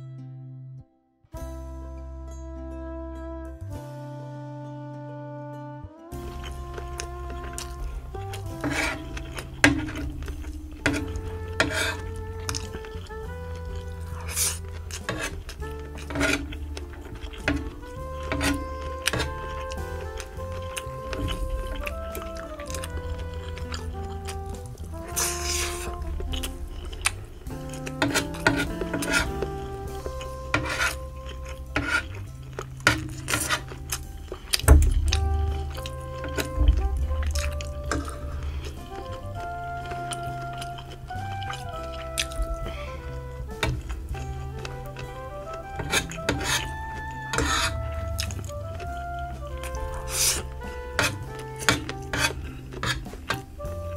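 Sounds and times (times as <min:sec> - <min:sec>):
background music with held notes: 0:00.0 - 0:53.9
cutlery scraping a tray: 0:16.0 - 0:19.9.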